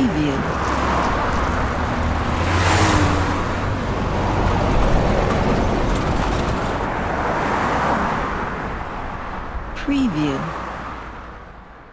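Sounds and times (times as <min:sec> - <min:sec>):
highway traffic roar: 0:00.0 - 0:11.9
vehicle passing close: 0:00.4 - 0:09.2.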